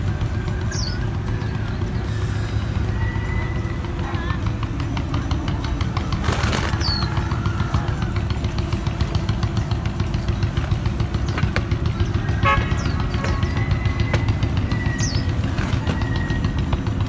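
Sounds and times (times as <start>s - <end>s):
low outdoor rumble: 0.0s - 17.0s
bird chirps: 0.5s - 3.3s, 11.2s - 16.7s.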